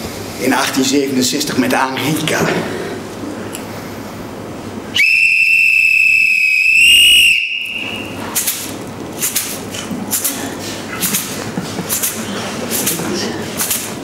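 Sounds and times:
whistle blast: 0:05.0 - 0:08.2.

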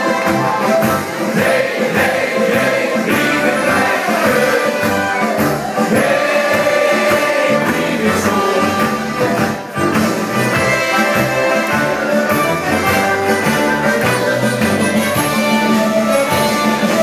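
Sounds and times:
steady beat: 0:00.0 - 0:17.0
men singing together: 0:01.3 - 0:09.6.

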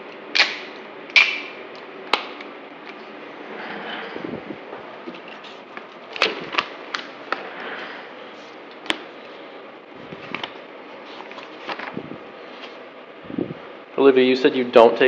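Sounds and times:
clicks and knocks handling papers: 0:05.0 - 0:07.9, 0:10.1 - 0:12.8.

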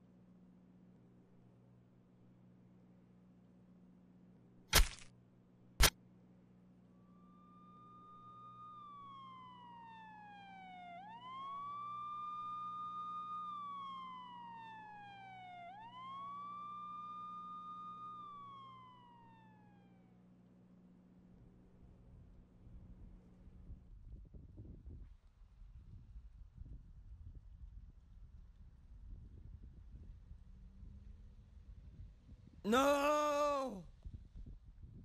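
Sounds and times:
police siren wailing: 0:06.9 - 0:20.6.

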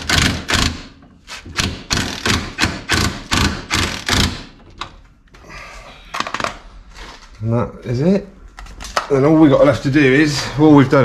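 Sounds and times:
impact gun bursts: 0:01.6 - 0:04.6.

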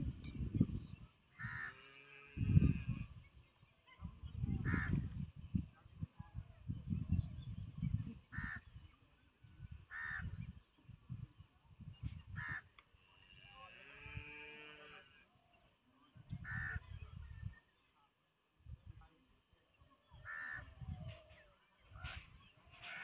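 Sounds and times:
wind rumble on microphone: 0:00.0 - 0:12.7, 0:16.1 - 0:17.6, 0:18.6 - 0:19.2, 0:20.1 - 0:23.0
crow cawing: 0:09.9 - 0:10.3, 0:20.2 - 0:20.7.

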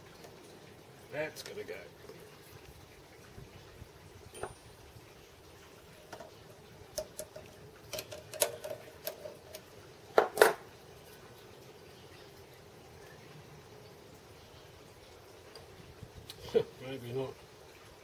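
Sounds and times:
light metal clicks and clinks: 0:04.3 - 0:04.7.

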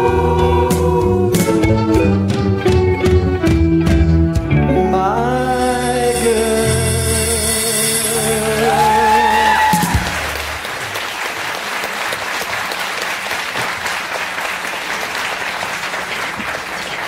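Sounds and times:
audience applause: 0:08.8 - 0:17.0.

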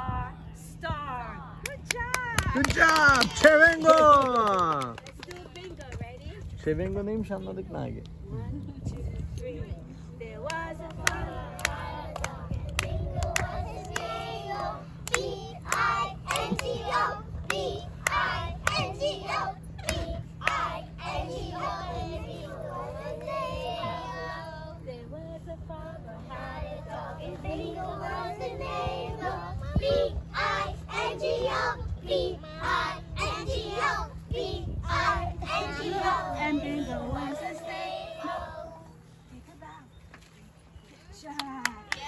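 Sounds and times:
hand claps: 0:01.6 - 0:06.1, 0:10.5 - 0:14.1, 0:15.0 - 0:16.7, 0:41.3 - 0:42.0
children singing together: 0:26.3 - 0:38.9.

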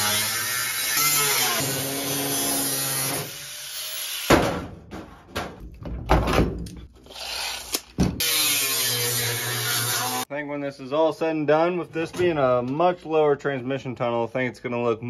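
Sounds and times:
knocks and scraping on sheet metal: 0:04.3 - 0:06.6.

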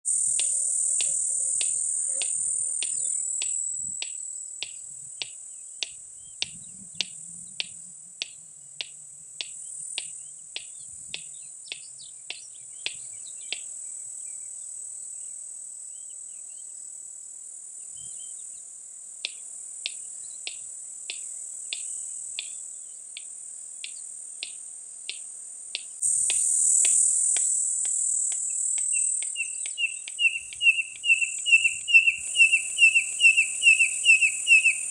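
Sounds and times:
high-pitched insect drone: 0:00.1 - 0:05.4, 0:25.8 - 0:34.9
bird calling sharp dry clicks: 0:00.3 - 0:13.7, 0:19.2 - 0:34.9
bird whistled notes: 0:28.5 - 0:34.9.

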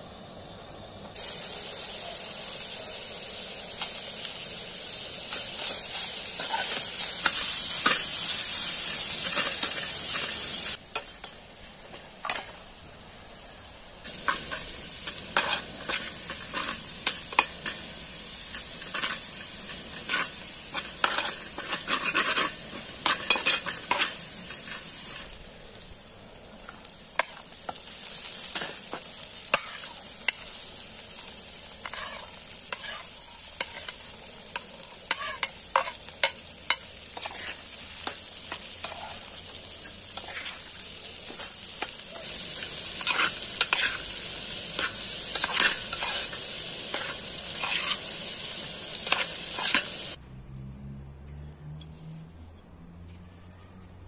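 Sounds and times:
onions sizzling in hot oil: 0:00.0 - 0:50.2
metal spoon scraping a pot: 0:46.9 - 0:48.0.

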